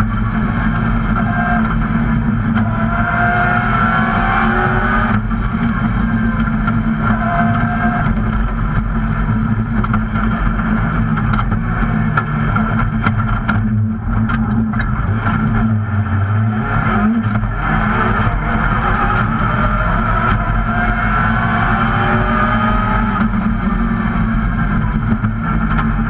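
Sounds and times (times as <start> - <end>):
rally car engine running hard: 0.0 - 26.0
sharp clicks and knocks: 5.0 - 15.9, 17.0 - 20.6, 24.8 - 26.0.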